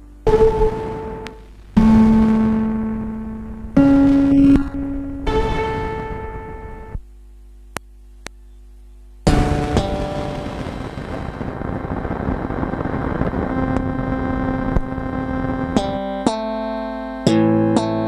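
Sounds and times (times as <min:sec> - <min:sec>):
sharp synthesizer notes: 0:00.0 - 0:07.0
synthesizer chord with noisy haze: 0:00.0 - 0:07.8, 0:09.1 - 0:18.0.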